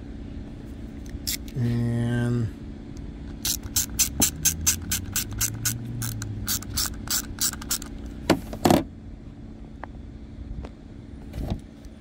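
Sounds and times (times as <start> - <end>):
ratchet clicking rapidly: 3.4 - 8.0.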